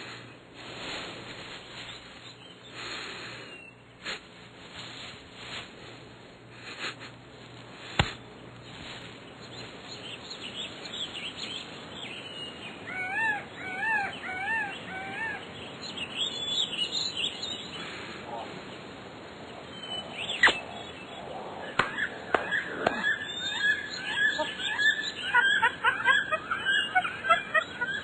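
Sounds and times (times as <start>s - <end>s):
bird rising and falling calls: 9.5s - 18.8s, 19.5s - 28.0s.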